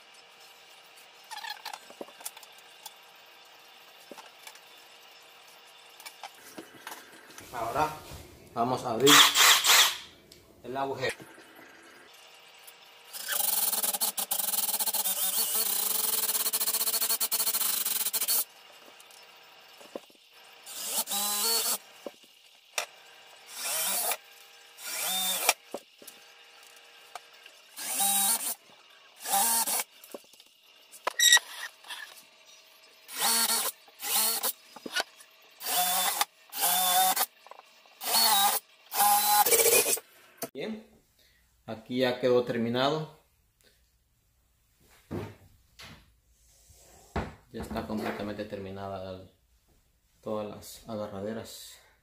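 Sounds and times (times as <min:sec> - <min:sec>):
cordless drill boring: 0:09.0 - 0:10.1, 0:13.1 - 0:30.2, 0:33.0 - 0:37.4, 0:38.0 - 0:40.0.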